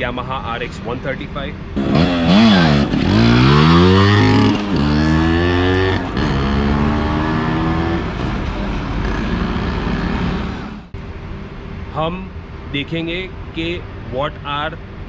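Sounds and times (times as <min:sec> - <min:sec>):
two-stroke engine accelerating: 0:01.8 - 0:08.4.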